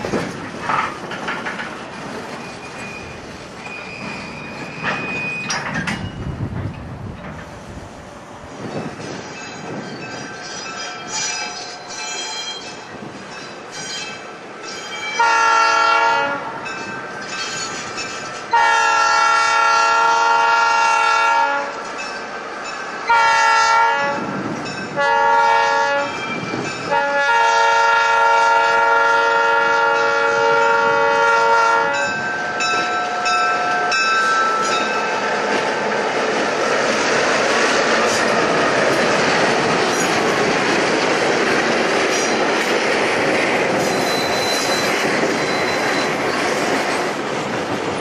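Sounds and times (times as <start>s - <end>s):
train wheels on rails: 0.0s - 48.0s
locomotive horn blasts: 15.2s - 16.6s, 18.5s - 21.8s, 23.1s - 24.3s, 24.9s - 26.2s, 26.9s - 32.2s.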